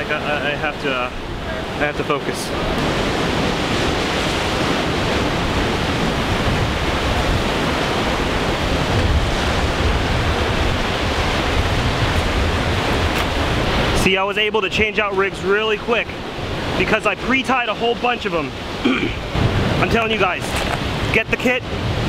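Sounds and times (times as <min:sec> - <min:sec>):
ocean surf: 0:00.0 - 0:22.0
wind on microphone: 0:02.5 - 0:14.1, 0:18.5 - 0:22.0.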